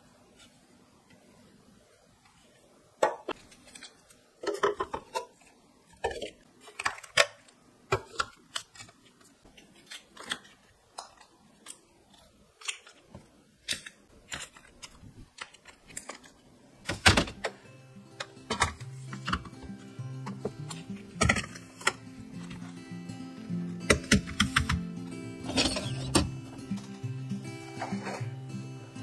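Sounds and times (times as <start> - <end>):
plastic trays clicking and knocking: 4.4 - 5.4, 12.7 - 17.6, 18.2 - 19.6, 20.2 - 22.0
soft background music: 16.9 - 29.0.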